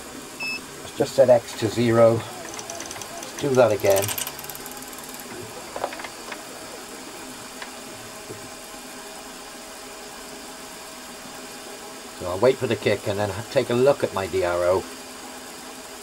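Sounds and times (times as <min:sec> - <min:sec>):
milling machine motor running: 0:00.0 - 0:10.0
faint clicks: 0:02.4 - 0:06.4.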